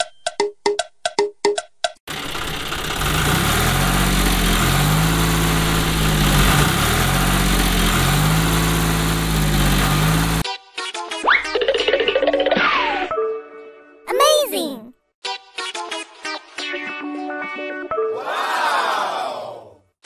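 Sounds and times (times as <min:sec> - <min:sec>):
tractor engine running: 0:02.1 - 0:10.4.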